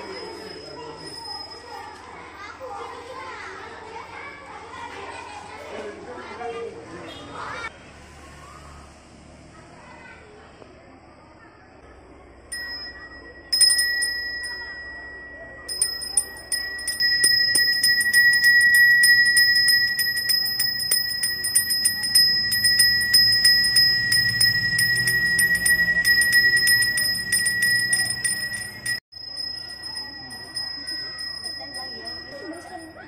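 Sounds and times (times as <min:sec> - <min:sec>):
brass hand bell ringing: 0:12.5 - 0:33.0.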